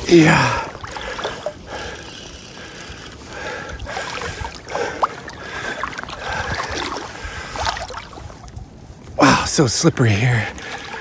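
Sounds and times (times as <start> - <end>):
water splashing: 0.0 - 8.7.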